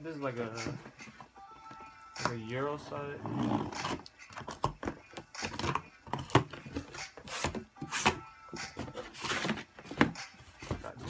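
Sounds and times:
cardboard scraping and crackling: 0:08.8 - 0:11.0.

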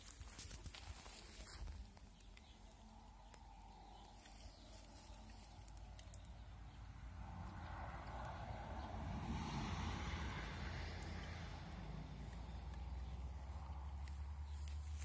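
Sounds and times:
soft ticks: 0:02.0 - 0:06.4.

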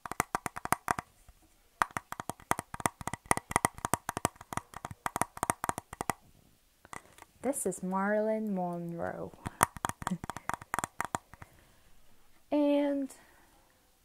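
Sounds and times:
fingers tapping on plastic: 0:00.0 - 0:01.1, 0:01.8 - 0:06.2, 0:08.8 - 0:11.5.

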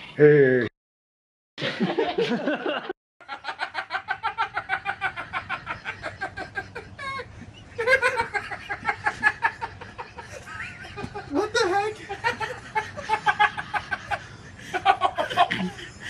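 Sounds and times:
person laughing: 0:04.4 - 0:16.0.

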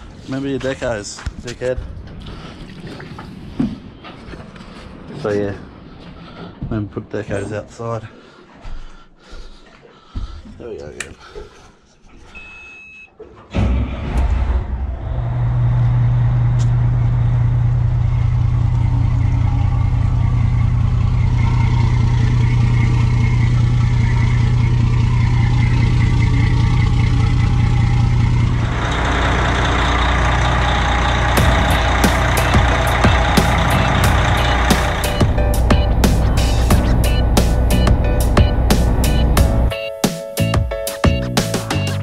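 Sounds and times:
diesel engine starting and idling: 0:13.4 - 0:39.7.

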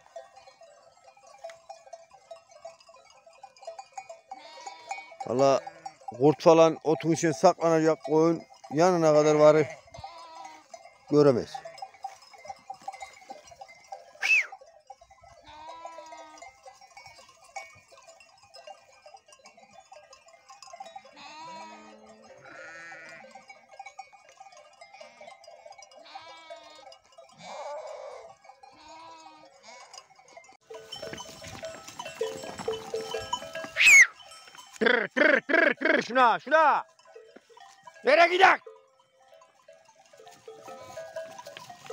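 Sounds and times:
livestock bells tinkling: 0:00.0 - 0:41.9
sheep bleating: 0:04.3 - 0:06.0, 0:09.6 - 0:10.8, 0:15.4 - 0:17.3, 0:21.1 - 0:23.4, 0:26.0 - 0:30.0.

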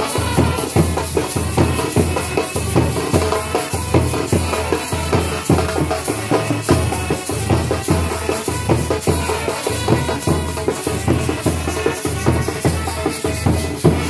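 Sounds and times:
brass band playing: 0:00.0 - 0:14.0
drum strikes: 0:00.0 - 0:14.0.

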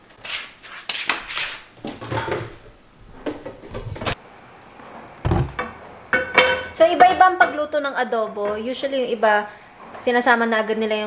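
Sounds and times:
pots and pans clattering on grates: 0:01.8 - 0:02.6, 0:05.2 - 0:07.7
low thump: 0:05.2 - 0:05.7.

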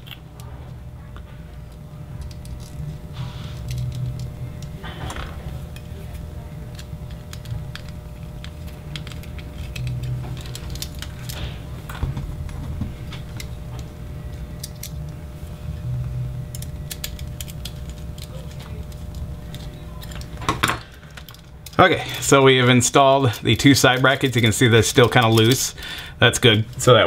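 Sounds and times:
low rumble of hands working: 0:00.0 - 0:27.0
small metal parts clicking: 0:02.2 - 0:11.5, 0:14.3 - 0:15.1, 0:16.5 - 0:22.2, 0:23.8 - 0:26.0.

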